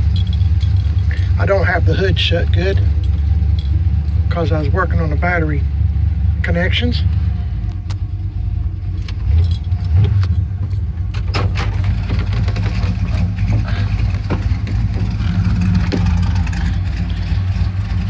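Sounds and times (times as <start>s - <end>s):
clicks and rattles in cab: 0.0s - 4.8s, 8.9s - 18.0s
car engine idling: 0.0s - 18.0s.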